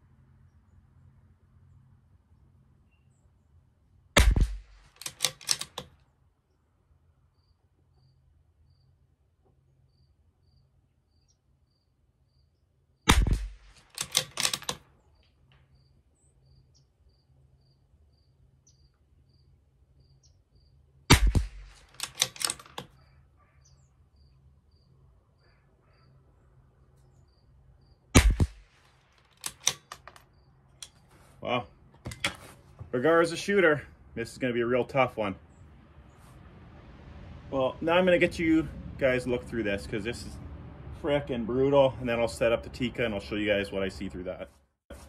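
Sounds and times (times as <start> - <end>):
rifle shots: 4.2 - 5.8, 13.1 - 14.8, 21.1 - 22.8, 28.1 - 30.0
rifle bolt clicks: 4.2 - 5.9, 13.1 - 14.8, 21.1 - 23.0, 28.2 - 30.2.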